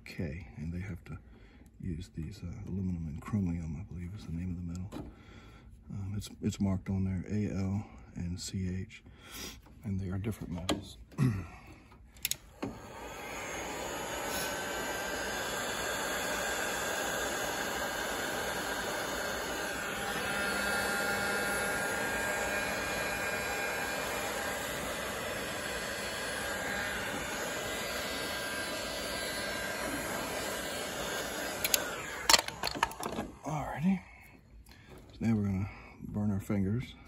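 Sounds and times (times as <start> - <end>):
heat gun blowing air: 12.2 - 33.4
sharp clicks: 31.6 - 33.2.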